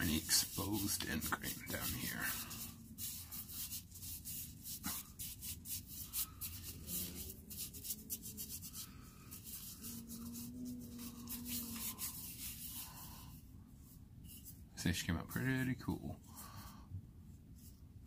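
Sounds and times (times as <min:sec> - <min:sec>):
gloved hands rubbing oiled wood: 0:00.0 - 0:13.3.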